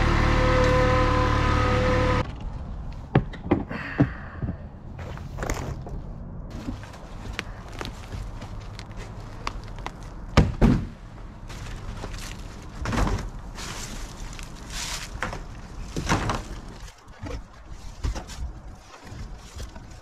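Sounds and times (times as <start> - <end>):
scraping and rustling: 11.5 - 20.0.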